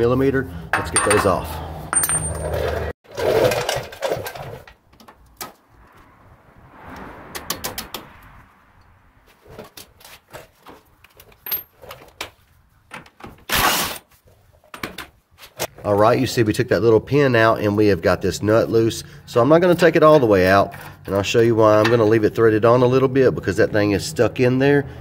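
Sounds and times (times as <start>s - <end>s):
hand tools clattering: 0.7s - 4.8s.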